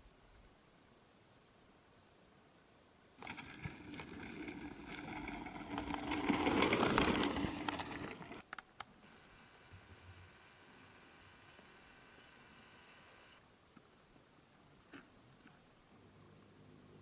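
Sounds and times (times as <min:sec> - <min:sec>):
bike tyres crunching on gravel: 0:03.2 - 0:08.4
bike rattles and clicks: 0:03.2 - 0:08.6.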